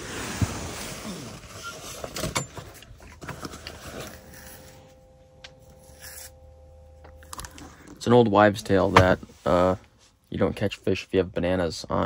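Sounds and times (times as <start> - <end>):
handling knocks: 8.9 - 9.2.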